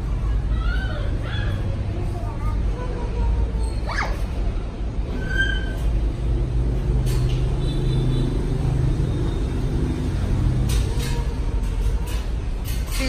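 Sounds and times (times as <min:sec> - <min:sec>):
vehicle engine rumble: 0:04.2 - 0:13.0.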